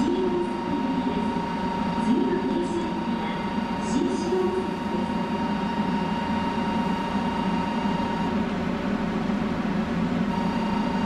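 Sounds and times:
thin high whine: 0.0s - 8.7s, 10.2s - 11.0s
train equipment humming: 0.0s - 11.0s.

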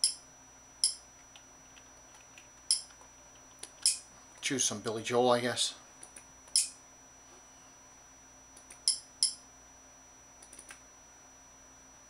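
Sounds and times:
keyboard or mouse clicks: 10.4s - 10.8s.

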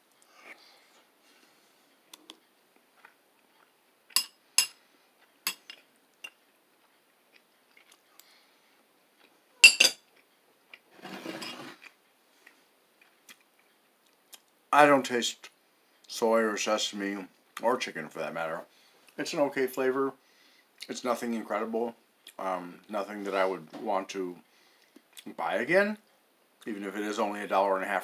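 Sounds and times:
utensil scraping dish: 11.0s - 11.8s.

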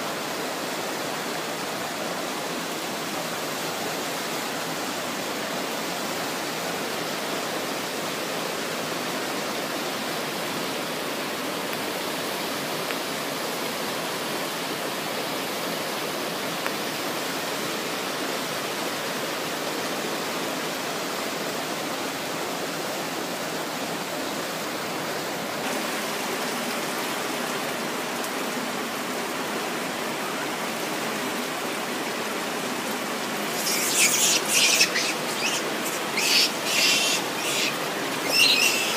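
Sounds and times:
river rapids and waterfall: 0.0s - 38.9s.

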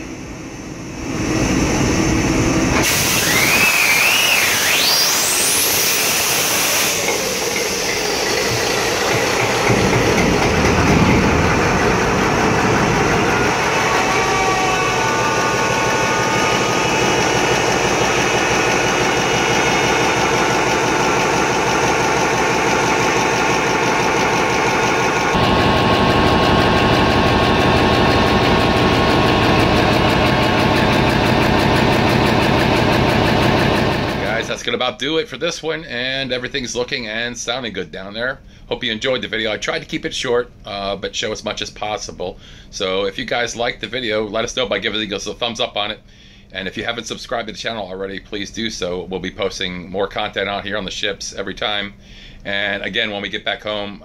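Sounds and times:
hiss and rising whine: 0.0s - 34.6s
diesel generator running: 0.0s - 34.7s, 51.9s - 52.9s.

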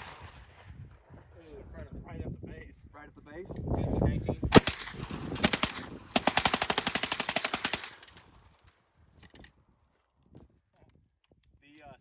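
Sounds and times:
submachine gun bursts: 5.4s - 8.2s.

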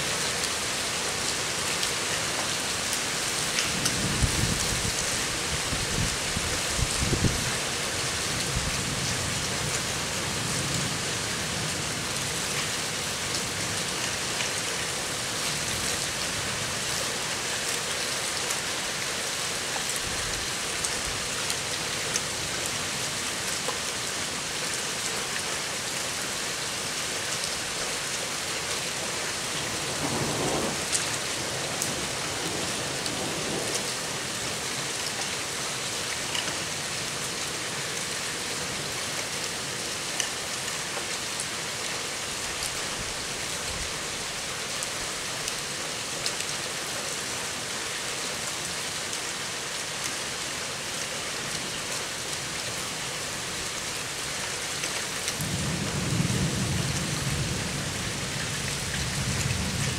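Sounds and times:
steady rain: 0.0s - 59.9s
low rumble of thunder: 3.9s - 7.4s, 29.8s - 31.0s, 55.4s - 59.9s.

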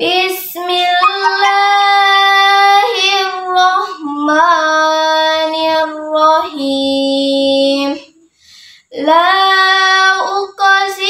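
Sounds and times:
girl chanting melodically: 1.0s - 1.8s.

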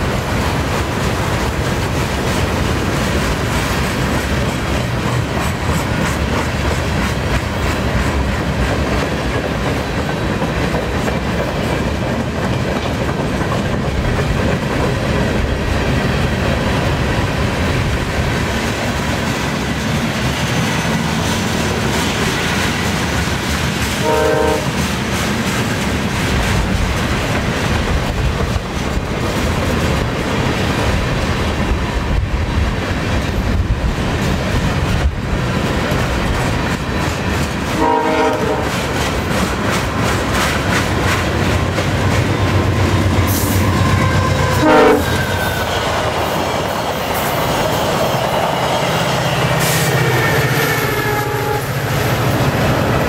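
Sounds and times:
freight train wheels rumbling on rail: 0.0s - 53.0s
train horn blast: 23.9s - 24.9s, 37.7s - 38.9s, 43.2s - 45.7s, 49.5s - 52.0s.

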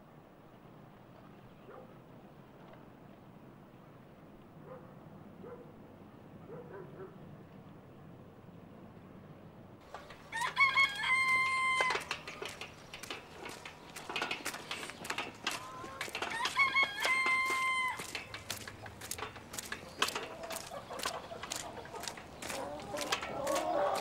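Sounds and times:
hens clucking: 9.8s - 24.0s
rooster crowing: 10.3s - 12.1s, 15.8s - 18.2s.

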